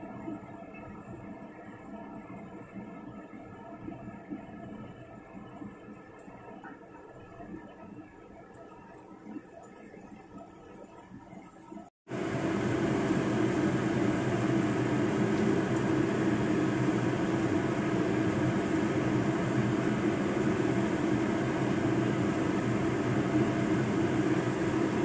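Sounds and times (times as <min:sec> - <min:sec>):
fan motor humming: 0:12.1 - 0:25.0.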